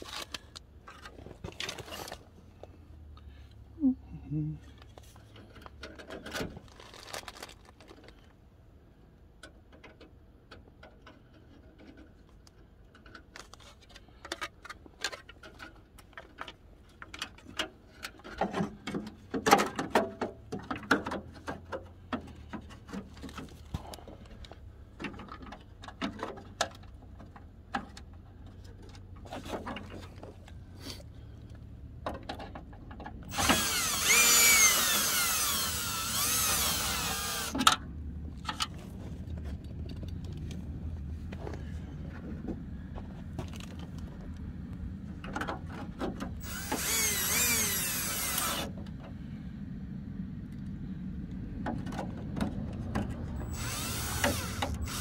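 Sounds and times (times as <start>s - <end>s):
clicks and knocks of handling: 9.4s - 30.6s
cordless drill whine: 33.3s - 37.6s, 46.4s - 48.7s, 53.4s - 55.0s.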